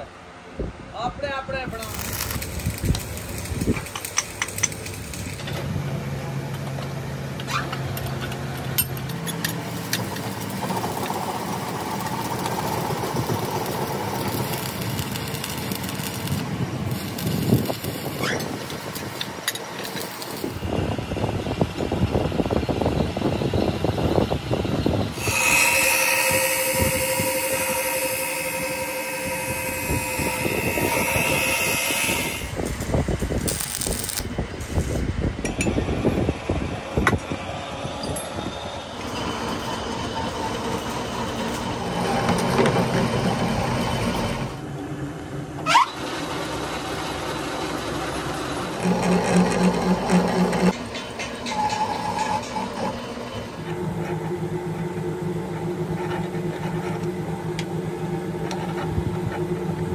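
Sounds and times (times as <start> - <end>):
multi-pitched whine: 0.8 - 7.4, 8.8 - 45.6
arc welding crackle: 1.6 - 5.7, 9.4 - 20.7, 25.2 - 35.1.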